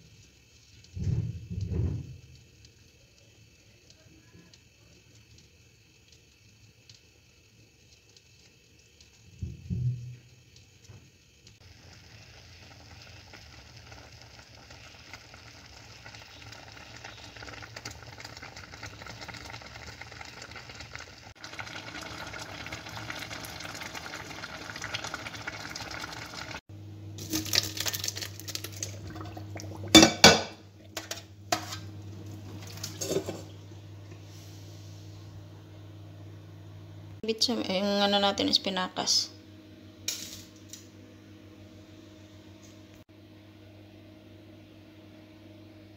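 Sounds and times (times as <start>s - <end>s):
water boiling in a pot: 0.0s - 39.2s
low hum: 28.7s - 37.2s
pots and dishes clattering: 29.1s - 31.9s, 32.6s - 33.5s.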